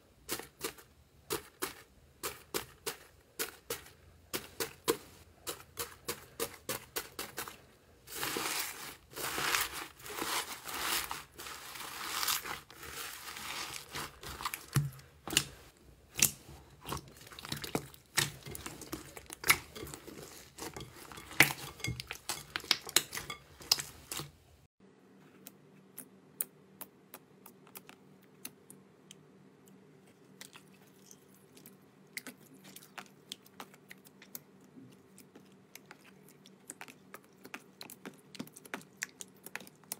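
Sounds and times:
foam beads crackling in slime: 8.1 - 14.8.

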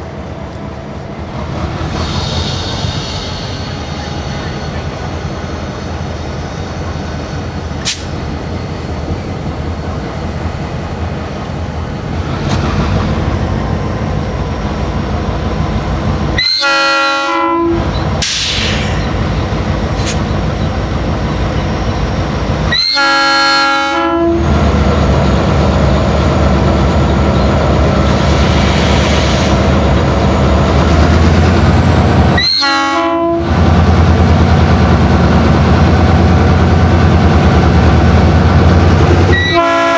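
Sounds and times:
diesel locomotive rumble: 0.0 - 39.9
locomotive horn blasts: 16.4 - 17.9, 22.7 - 24.5, 32.4 - 33.5, 39.3 - 39.9.

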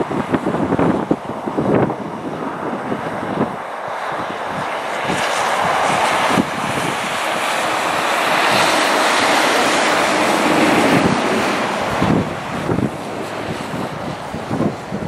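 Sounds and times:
diesel locomotive engine: 0.0 - 15.0
wind buffeting microphone: 0.0 - 15.0
train rolling: 3.6 - 14.7.

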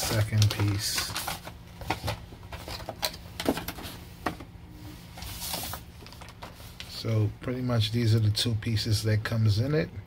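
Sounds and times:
packaging rustle: 0.0 - 4.0, 5.2 - 6.9
plastic trays crinkling and tapping: 0.0 - 4.5, 6.0 - 6.6.

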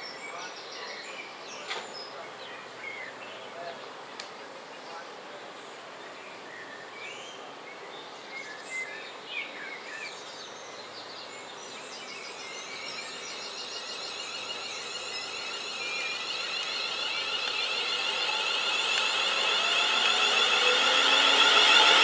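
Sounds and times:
birds chirping: 10.0 - 22.0
electric train approaching: 12.2 - 22.0
rail noise: 12.6 - 22.0.

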